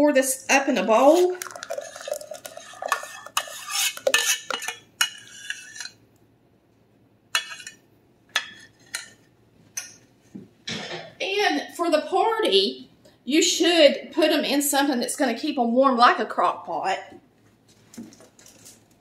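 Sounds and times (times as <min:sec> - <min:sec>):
spoon scraping saucepan: 0:00.8 - 0:06.0, 0:07.4 - 0:07.8.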